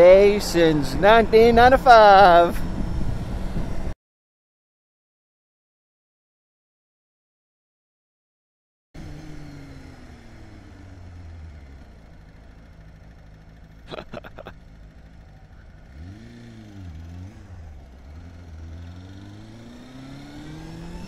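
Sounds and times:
wind rush: 0.3s - 3.9s
motorcycle engine revving: 9.0s - 21.0s.

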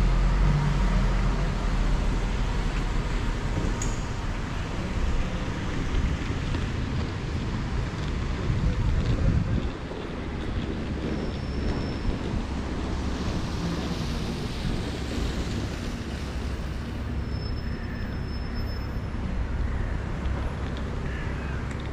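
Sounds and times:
wind rumbling on microphone: 0.0s - 17.2s
street traffic: 0.0s - 21.9s.

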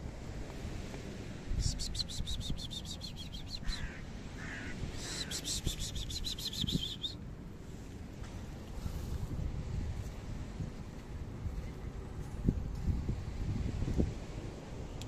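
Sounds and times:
bird rapid chattering call: 1.8s - 7.1s.

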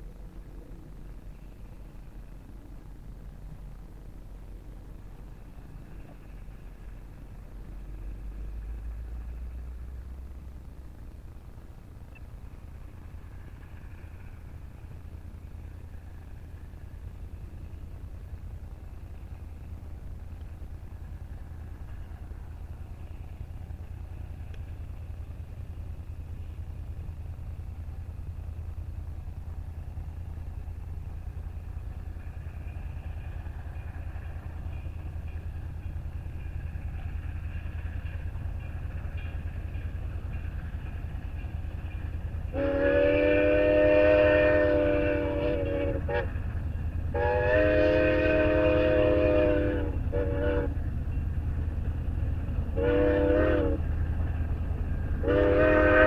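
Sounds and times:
low rumble: 0.0s - 56.0s
steam locomotive whistle blasts: 42.4s - 46.4s, 47.1s - 50.8s, 52.7s - 53.8s, 55.2s - 56.0s.

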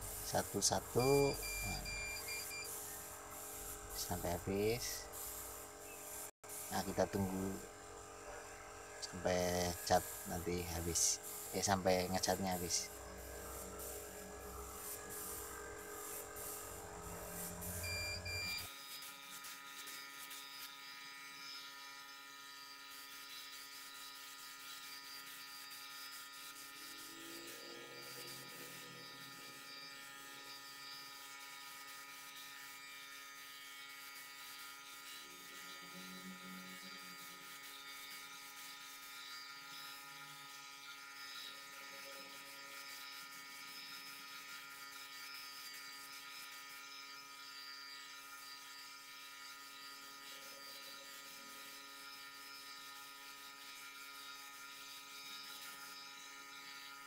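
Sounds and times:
air compressor humming: 0.0s - 18.7s.

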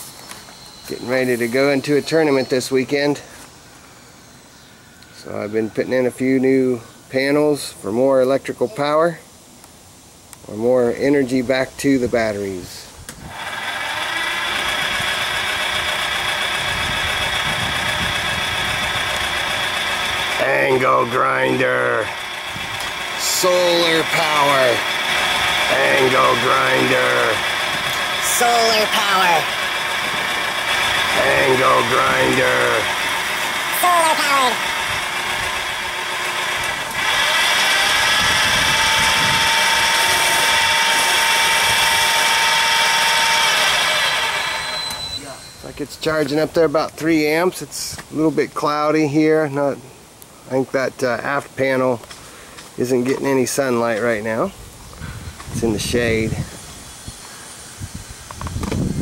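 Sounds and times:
high-pitched electric motor whine: 0.0s - 6.4s, 13.2s - 46.4s, 55.2s - 59.0s.

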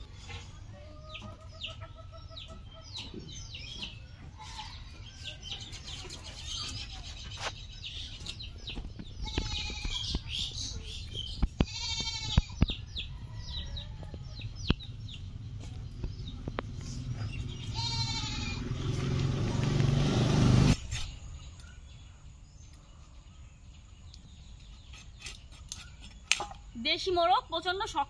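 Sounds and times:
quiet outdoor ambience: 0.0s - 28.0s
quavering animal calls: 17.6s - 18.9s.

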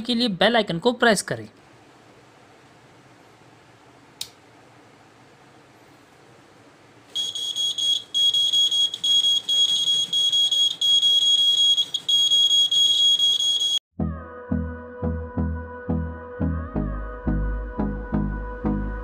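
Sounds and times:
high-pitched buzzer alarm tone: 7.1s - 13.8s.

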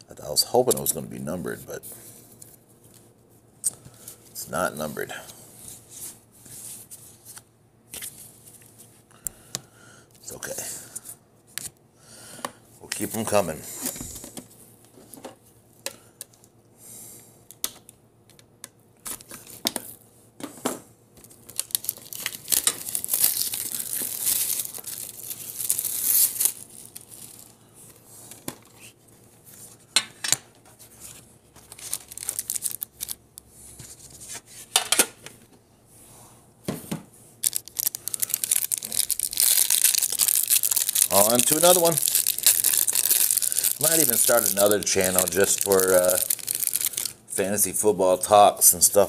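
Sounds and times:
plastic wrap crinkling and tearing: 21.2s - 27.6s, 31.6s - 33.2s, 37.4s - 47.2s.

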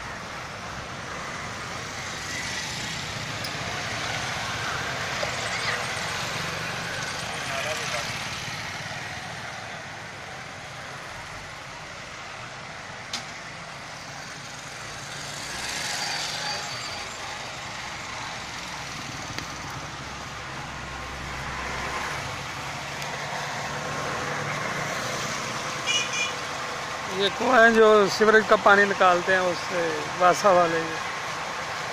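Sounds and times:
road traffic passing: 0.0s - 31.9s.

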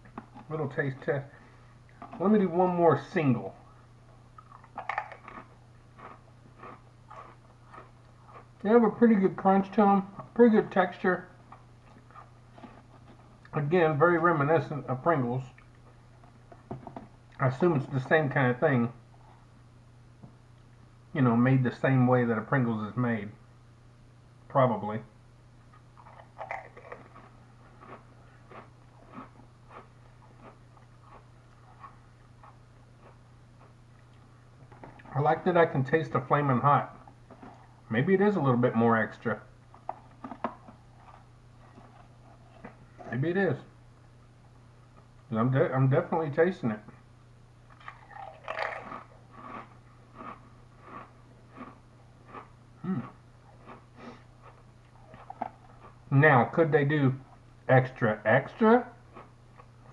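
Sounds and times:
crisp crunching while chewing: 4.3s - 8.6s, 25.8s - 34.3s, 39.7s - 43.2s, 47.7s - 56.1s, 59.0s - 59.9s
person humming: 52.8s - 53.2s.

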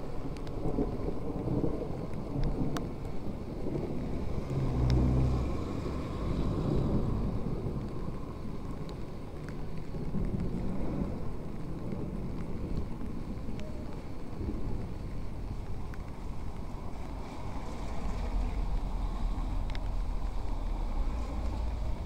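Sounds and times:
faint ticks: 0.3s - 0.6s, 1.2s - 3.2s, 4.5s - 5.1s, 8.6s - 10.8s, 11.4s - 16.7s, 19.4s - 20.5s.

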